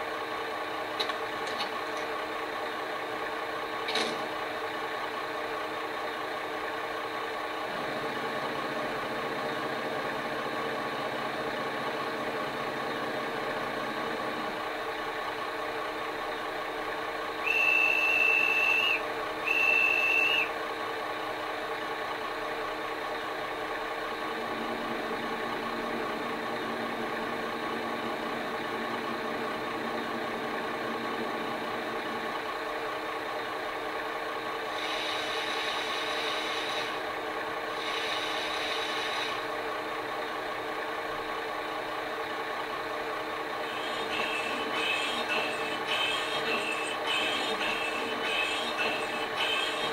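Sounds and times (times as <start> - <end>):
diesel engine idling: 0.0 - 49.9
locomotive horn blasts: 17.4 - 20.5.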